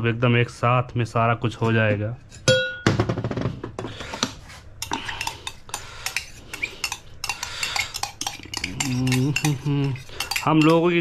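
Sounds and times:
cup clinking against steel bowl: 0:02.5 - 0:02.9.

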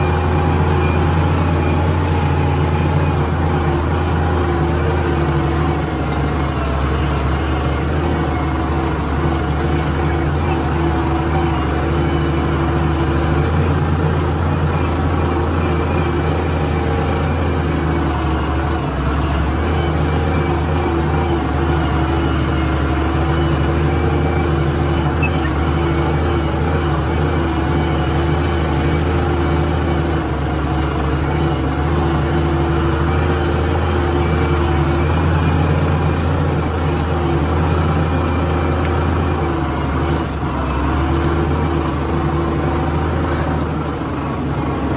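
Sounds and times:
tractor engine running: 0:00.0 - 0:44.9.

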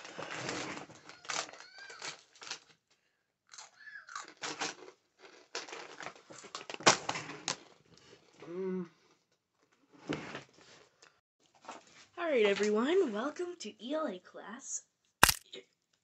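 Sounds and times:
chips being crunched and chewed: 0:03.5 - 0:06.6, 0:15.2 - 0:15.5
person humming: 0:08.5 - 0:08.9.

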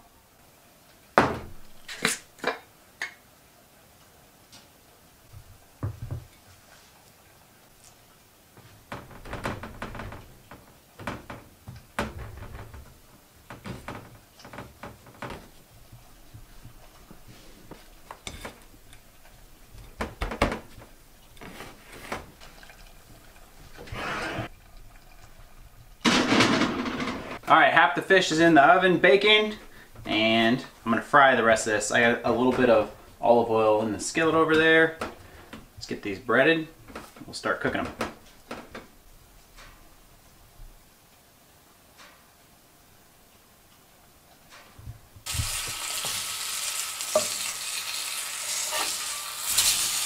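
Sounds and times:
dishes clattering and knocking: 0:01.2 - 0:03.2, 0:05.4 - 0:06.4, 0:08.9 - 0:27.4
rough rustling noise: 0:06.4 - 0:24.5.

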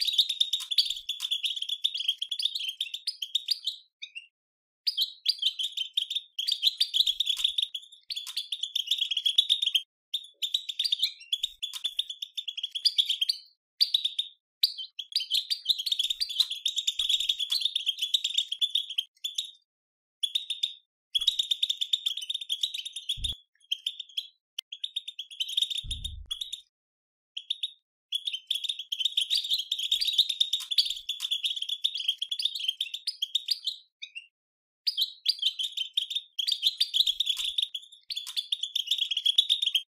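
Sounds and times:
dull low thump: 0:25.9 - 0:26.4.

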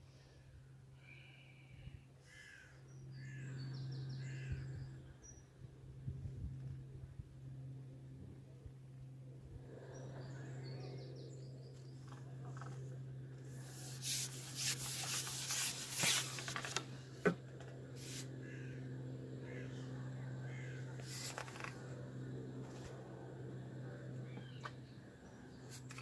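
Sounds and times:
fishing pole sections scraping: 0:13.6 - 0:16.9, 0:21.0 - 0:21.8, 0:25.7 - 0:26.0.

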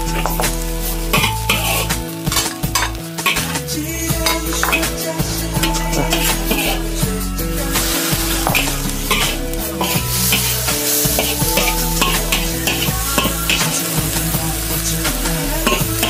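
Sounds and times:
metal ladle scraping a wok: 0:00.0 - 0:03.6, 0:04.2 - 0:05.0, 0:05.6 - 0:07.0, 0:07.7 - 0:13.8
food sizzling: 0:00.0 - 0:16.0.

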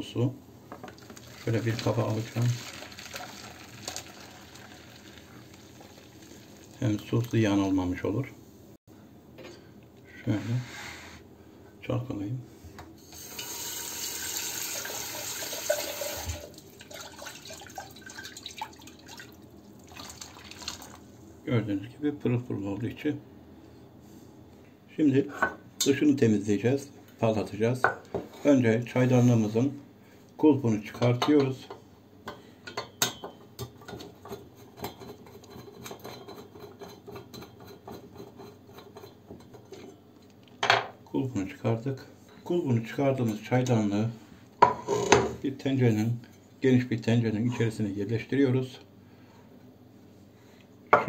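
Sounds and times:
water splashing and dripping: 0:15.7 - 0:21.0.

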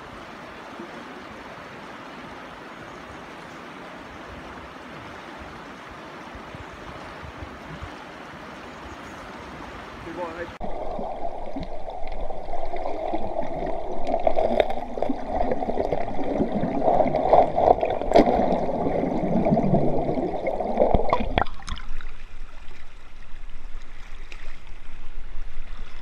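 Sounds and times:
flowing water wash: 0:00.0 - 0:26.0
muffled underwater river current: 0:00.0 - 0:26.0.

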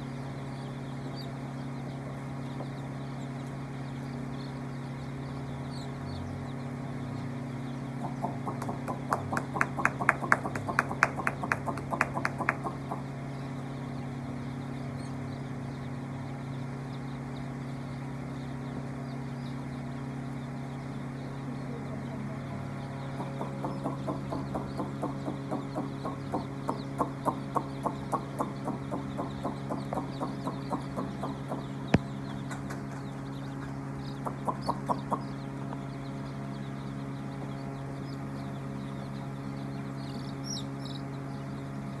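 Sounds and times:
chicks peeping: 0:00.0 - 0:42.0
low hum: 0:00.0 - 0:42.0
sharp clicking chirps: 0:07.9 - 0:13.0, 0:23.2 - 0:39.2.

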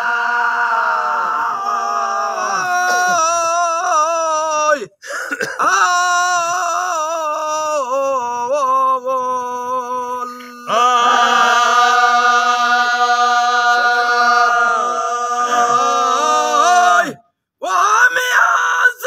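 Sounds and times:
man singing: 0:05.7 - 0:12.2.

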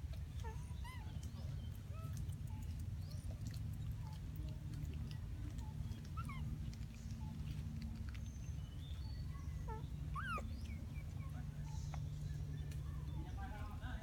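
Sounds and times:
low steady rumble: 0:00.0 - 0:14.0
monkey squeaks and chirping calls: 0:05.6 - 0:06.4, 0:08.3 - 0:13.2.

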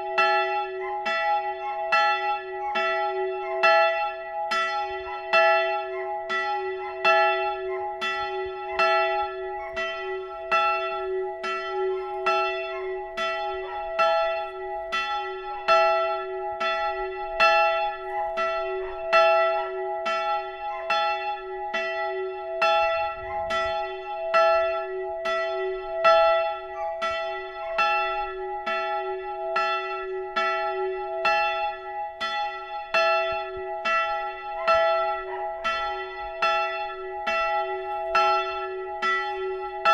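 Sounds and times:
church bell ringing: 0:00.0 - 0:39.9.

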